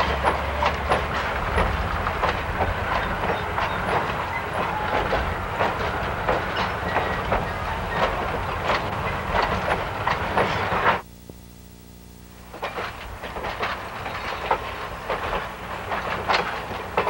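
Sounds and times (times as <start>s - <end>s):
train rumbling: 0.0s - 11.0s, 12.4s - 17.0s
wheels clacking over rail joints: 0.0s - 11.0s, 12.4s - 17.0s
faint steady hum: 11.0s - 14.2s.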